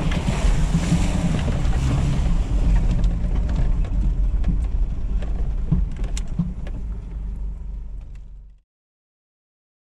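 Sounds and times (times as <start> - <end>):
body and gear knocking: 0.0 - 7.2
engine and road rumble: 0.0 - 8.6.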